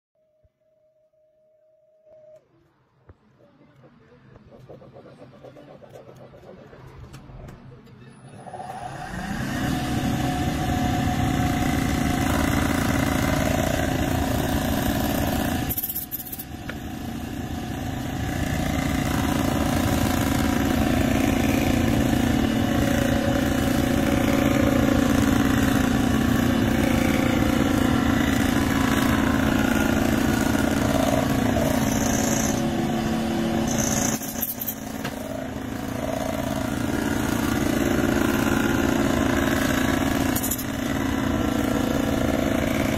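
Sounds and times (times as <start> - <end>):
milling machine drone: 3.8 - 42.9.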